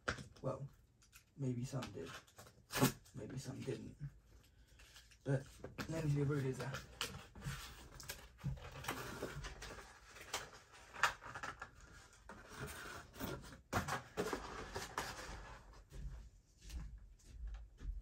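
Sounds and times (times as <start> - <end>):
rustling and scraping: 3.4 - 16.7.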